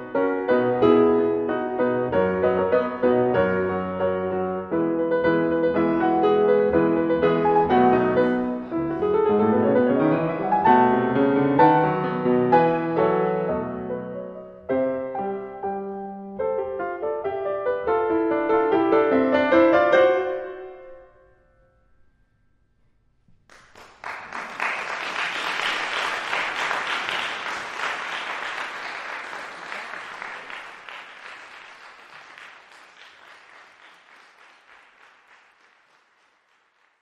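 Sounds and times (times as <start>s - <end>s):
audience applauding: 23.5s - 37.0s.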